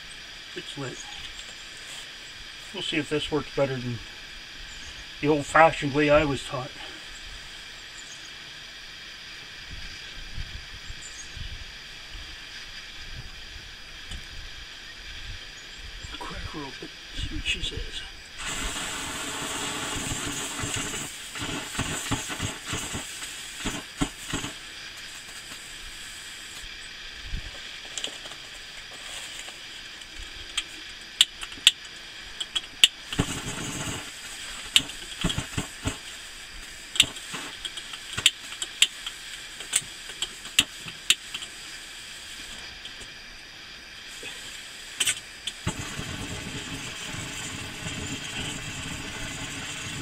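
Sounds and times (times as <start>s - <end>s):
stove burner flame roar: 0.0s - 8.0s, 16.0s - 50.0s
faint steady hiss: 0.0s - 50.0s
lighter igniter clicks: 36.9s - 41.5s.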